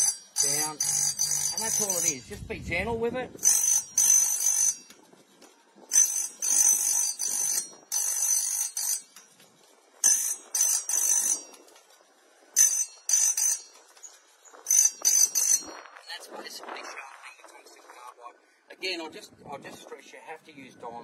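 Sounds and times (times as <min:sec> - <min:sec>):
grinding wheel on metal teeth: 0:00.0 - 0:02.4, 0:03.4 - 0:16.0.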